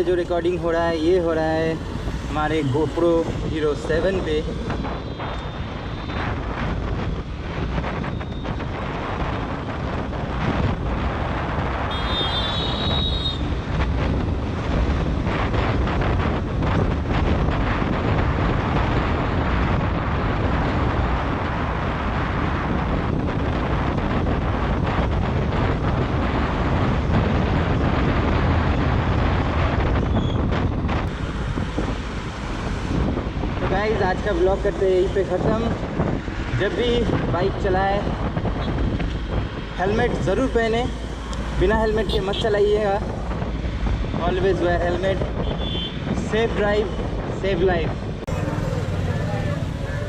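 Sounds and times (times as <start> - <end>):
road noise: 0.0 - 50.0
wind rushing over microphone: 0.0 - 50.0
motorcycle running: 48.0 - 50.0.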